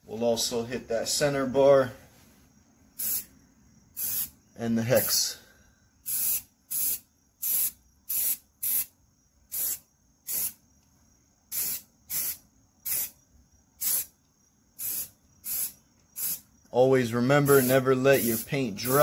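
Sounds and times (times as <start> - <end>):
spray paint can hissing: 3.0 - 3.3, 4.0 - 4.4, 6.0 - 8.9, 9.5 - 10.6, 11.5 - 13.2, 13.8 - 14.1, 14.8 - 16.4, 17.4 - 19.0.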